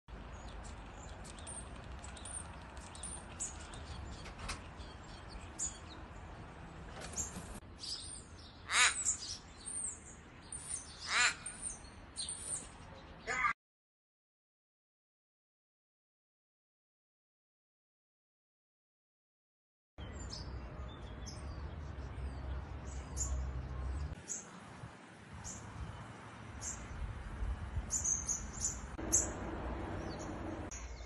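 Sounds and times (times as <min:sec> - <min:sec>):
small birds chirping: 0:00.2 - 0:13.5, 0:20.0 - 0:31.0
raven cawing: 0:08.7 - 0:09.3, 0:11.0 - 0:11.6.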